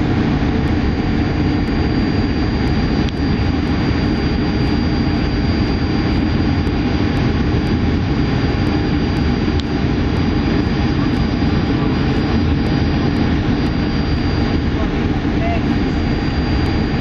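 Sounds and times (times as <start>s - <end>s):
jet engine drone in cabin: 0.0s - 17.0s
thin high whine: 0.0s - 17.0s
tiny tick: 3.0s - 3.2s, 9.1s - 9.7s.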